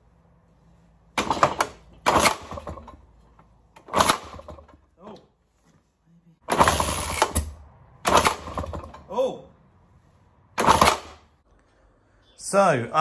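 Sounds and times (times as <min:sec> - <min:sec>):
engine firing in sharp pops: 0:01.2 - 0:03.0, 0:03.8 - 0:04.8, 0:06.5 - 0:09.0, 0:10.6 - 0:11.3.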